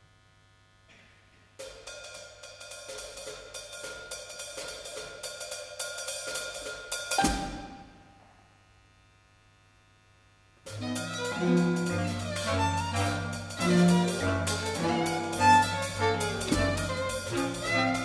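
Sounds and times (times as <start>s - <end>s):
ensemble playing chords: 10.7s - 18.0s
hi-hat fast strokes: 10.7s - 18.0s
solo violin: 10.7s - 18.0s.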